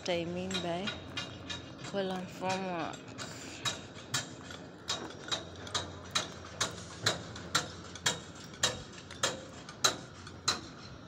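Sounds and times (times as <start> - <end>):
hammering on steel: 0.0 - 11.0.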